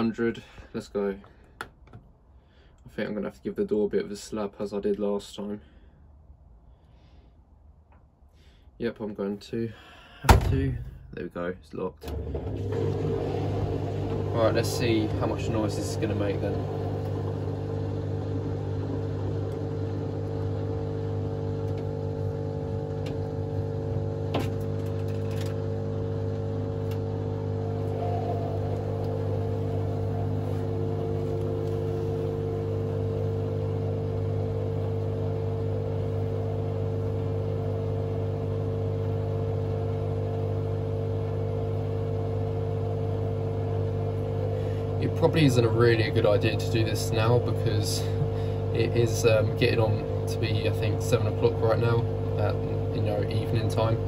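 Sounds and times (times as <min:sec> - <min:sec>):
washing machine drum humming: 0:12.0 - 0:54.0.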